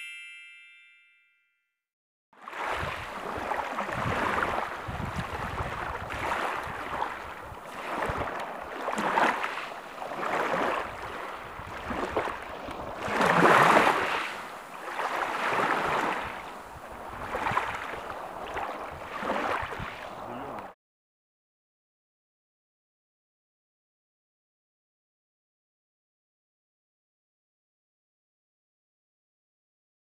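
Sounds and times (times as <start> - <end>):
waves washing up pebbly beach: 2.4 - 20.2.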